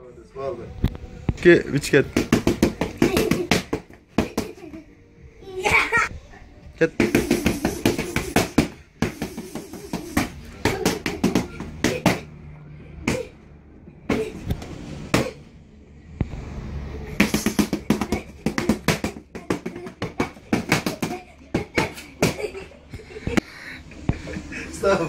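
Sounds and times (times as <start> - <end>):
punches smacking focus mitts: 2.1 - 4.7, 7.0 - 12.2, 17.2 - 22.5.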